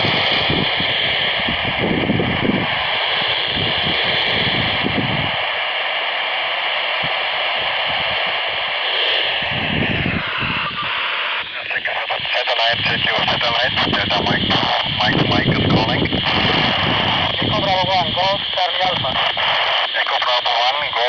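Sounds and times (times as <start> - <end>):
faint steady tones: 0.0 - 21.0
radio static hissing: 0.0 - 21.0
fluttering low rumble: 7.6 - 11.9.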